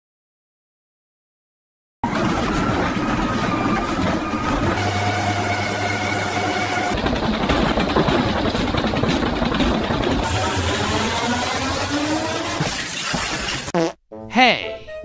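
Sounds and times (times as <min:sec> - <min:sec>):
washing machine motor running: 0:02.0 - 0:13.4.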